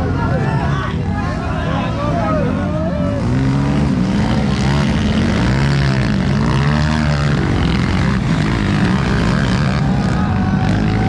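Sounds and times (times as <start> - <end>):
dirt bike engines revving: 0.0 - 11.0.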